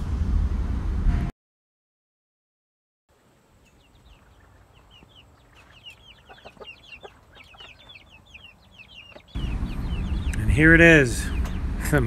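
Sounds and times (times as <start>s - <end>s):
chicks peeping: 3.6s - 12.0s
lower chicken calls: 3.7s - 11.6s.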